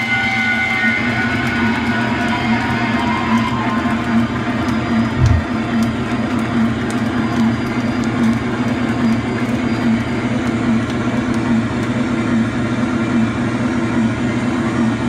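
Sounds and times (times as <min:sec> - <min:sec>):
pulsing low note: 0:04.9 - 0:05.9.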